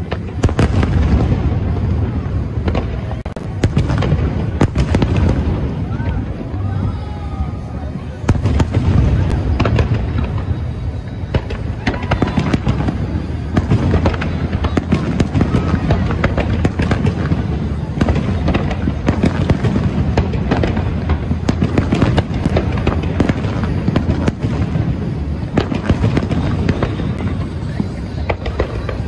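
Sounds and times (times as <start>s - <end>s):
continuous low rumble: 0.0s - 29.0s
firework shells bursting: 8.3s - 29.0s.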